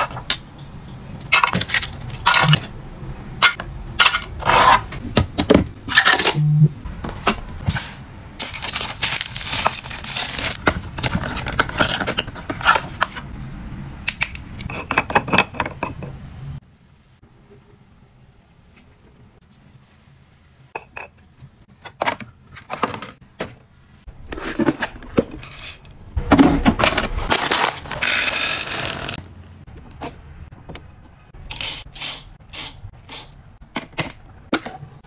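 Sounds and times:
plastic wrapping crinkling and tearing: 0:08.4 - 0:12.0, 0:27.2 - 0:29.2.

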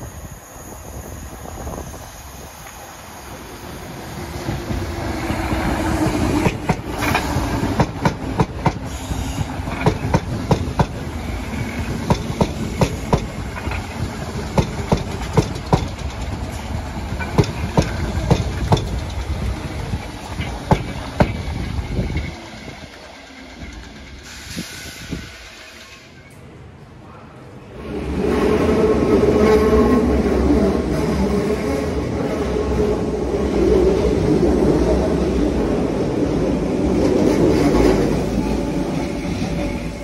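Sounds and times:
electric train running noise: 0:00.0 - 0:26.4
train wheels clacking over rail joints: 0:04.5 - 0:25.0.

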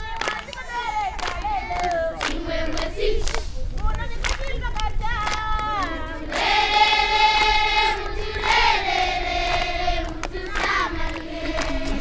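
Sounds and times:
group singing unaccompanied: 0:00.7 - 0:03.4, 0:05.7 - 0:12.0.

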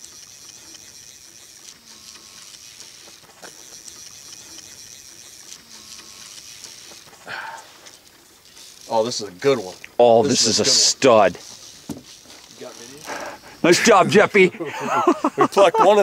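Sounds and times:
fishing reel drag ratcheting: 0:00.0 - 0:14.2
person speaking: 0:08.9 - 0:11.5.

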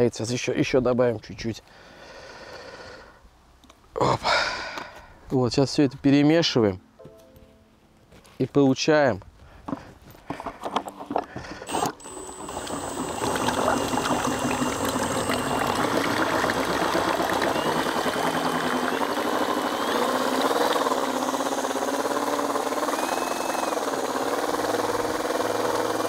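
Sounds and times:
drill motor whine: 0:11.6 - 0:26.0
whisk splashing in liquid: 0:12.3 - 0:21.2.

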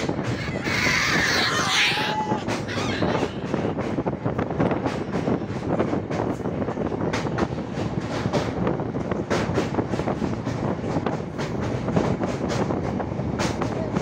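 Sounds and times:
train rumbling over bridge: 0:00.0 - 0:14.0.

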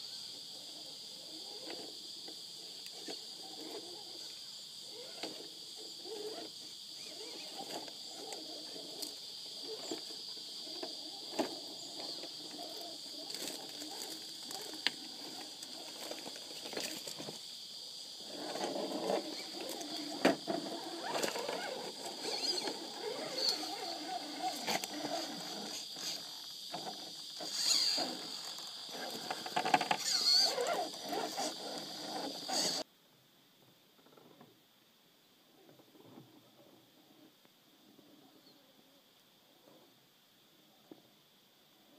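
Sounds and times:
high insect drone: 0:00.0 - 0:32.9
electric motor and gears whining: 0:18.2 - 0:32.8
tyres scraping over rocks: 0:18.3 - 0:26.2, 0:26.8 - 0:32.8.

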